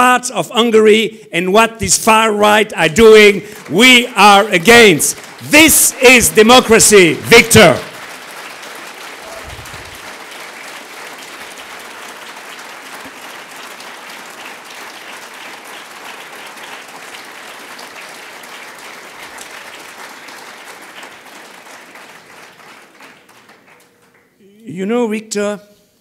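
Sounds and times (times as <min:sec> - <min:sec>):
audience applauding: 0:02.8 - 0:24.4.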